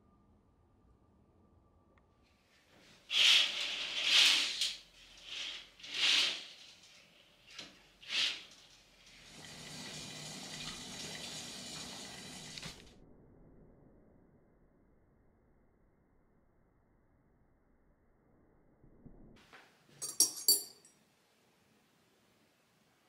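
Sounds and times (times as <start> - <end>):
curtains swishing along rail: 2.8 - 12.8.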